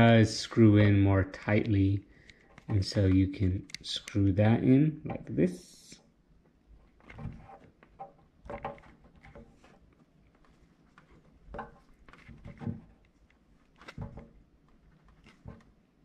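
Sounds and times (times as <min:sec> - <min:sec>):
faint handling rubs and scrapes: 0:06.7 - 0:16.0.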